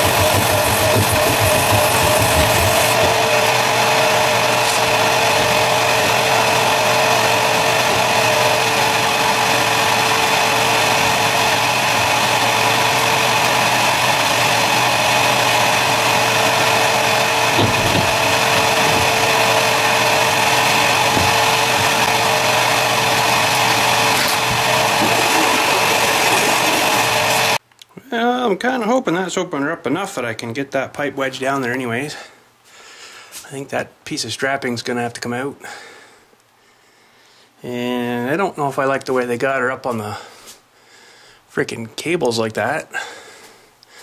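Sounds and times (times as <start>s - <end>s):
vacuum cleaner motor whine: 0.0s - 27.6s.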